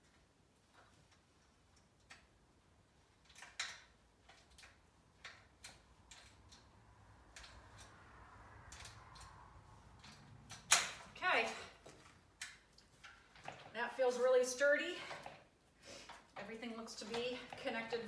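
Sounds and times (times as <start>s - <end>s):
tools clicking on metal frame: 3.1s - 11.1s.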